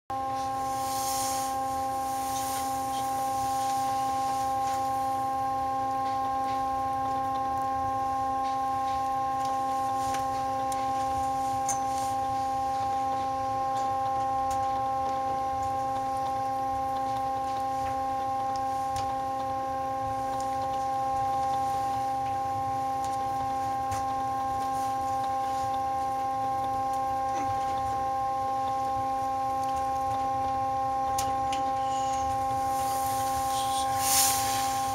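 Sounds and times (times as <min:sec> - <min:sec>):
funicular cabin whine: 0:00.1 - 0:34.9
brief hiss: 0:33.6 - 0:34.9.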